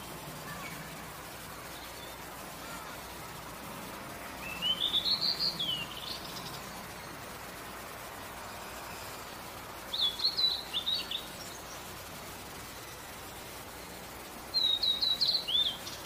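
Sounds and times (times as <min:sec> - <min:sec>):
bird singing high notes: 0:04.4 - 0:07.2, 0:14.5 - 0:16.0.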